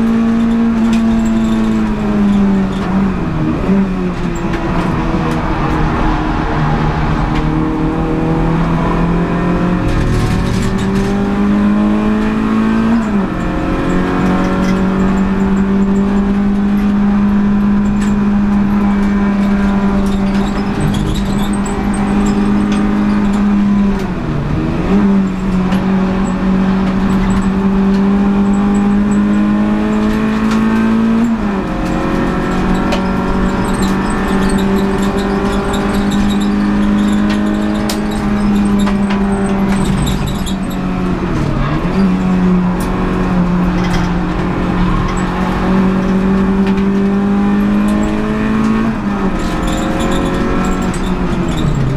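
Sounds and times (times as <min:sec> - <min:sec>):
car engine racing at high revs: 0:00.0 - 0:51.9.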